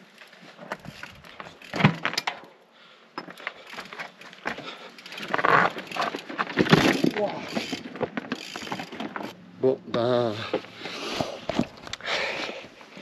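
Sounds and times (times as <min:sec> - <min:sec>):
bike clattering over rock: 0:00.6 - 0:02.6, 0:03.2 - 0:09.4.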